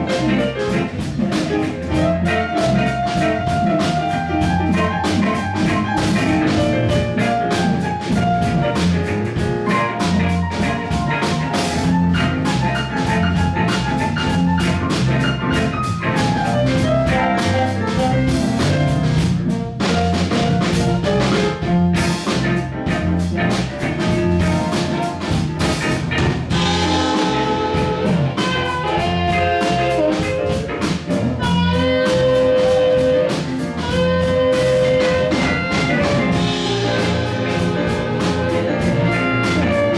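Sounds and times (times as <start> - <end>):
bass guitar groove: 0.0 - 39.9
drum kit: 0.0 - 39.9
electric guitar: 0.0 - 39.9
amplified harmonica: 26.5 - 30.6.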